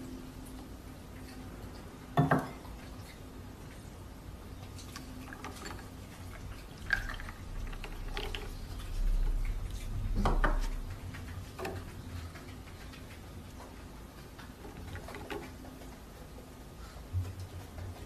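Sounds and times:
coffee pouring: 0:04.8 - 0:10.8.

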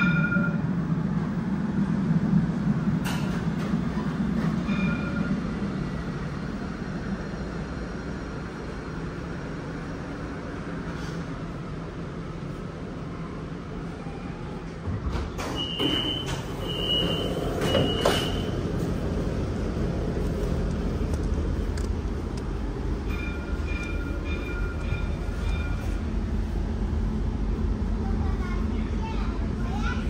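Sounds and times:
tram door warning beeps: 0:00.0 - 0:00.8, 0:04.4 - 0:06.0, 0:15.4 - 0:18.8, 0:22.8 - 0:26.5
tram running rumble: 0:00.0 - 0:30.0.

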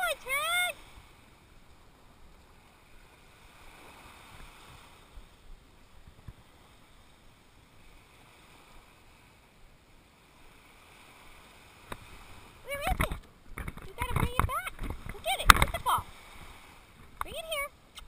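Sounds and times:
small waves breaking on sand: 0:00.0 - 0:18.0
wind on microphone: 0:10.2 - 0:18.0.

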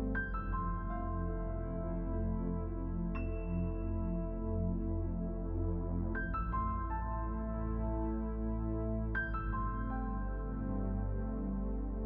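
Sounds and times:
sustained low ambient chords: 0:00.0 - 0:12.0.

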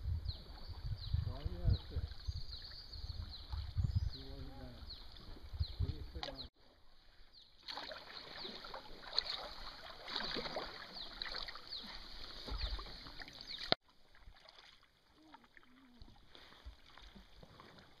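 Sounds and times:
kayak paddle splashing: 0:06.2 - 0:18.0.

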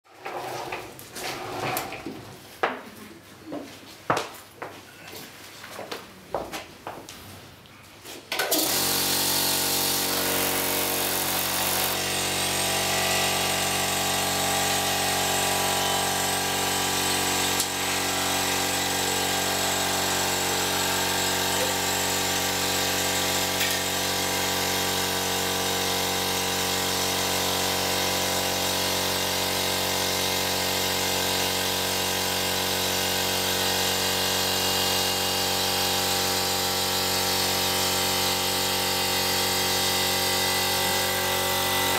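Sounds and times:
air compressor motor droning: 0:08.4 - 0:41.9.

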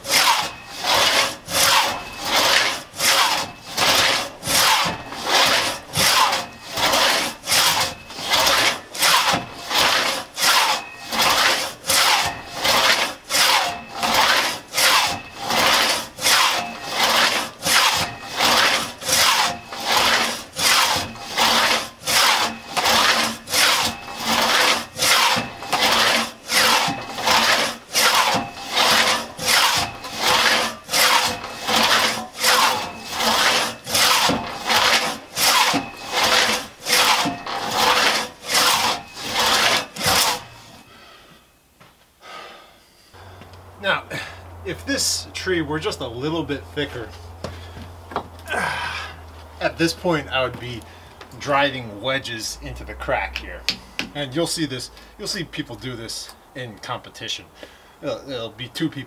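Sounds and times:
crosscut saw rasping through log: 0:00.0 - 0:41.0.

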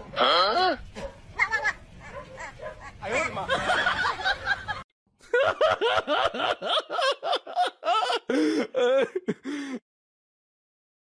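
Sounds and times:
hearty laughter: 0:02.4 - 0:09.8.

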